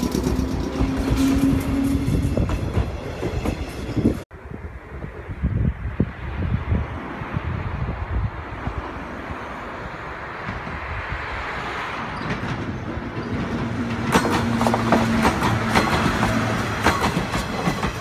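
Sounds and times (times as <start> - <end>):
wheels clicking over rail joints: 0.0 - 4.1, 12.0 - 18.0
electric train passing: 0.0 - 18.0
wind buffeting microphone: 0.0 - 18.0.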